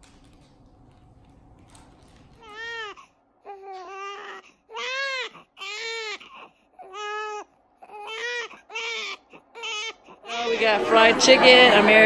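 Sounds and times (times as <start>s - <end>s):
infant crying: 2.4s - 10.7s.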